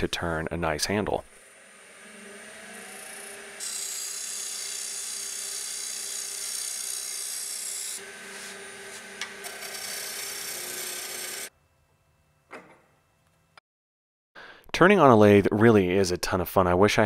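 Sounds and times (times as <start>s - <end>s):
turning tool cutting wood: 1.2s - 11.5s
lathe motor hum: 1.3s - 11.5s.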